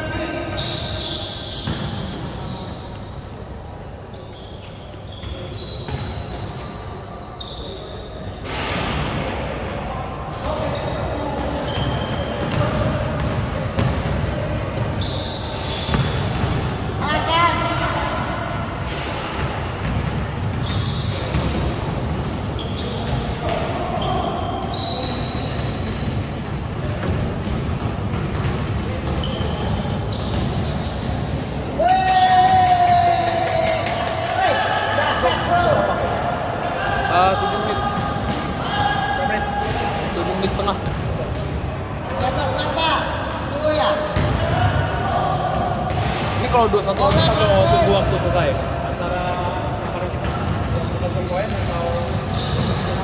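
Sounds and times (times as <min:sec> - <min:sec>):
sports hall background noise: 0:00.0 - 0:53.0
sneakers squeaking on court: 0:00.5 - 0:08.9, 0:10.2 - 0:31.6, 0:39.7 - 0:44.6, 0:50.0 - 0:53.0
basketball bouncing: 0:15.8 - 0:16.7, 0:26.4 - 0:30.5.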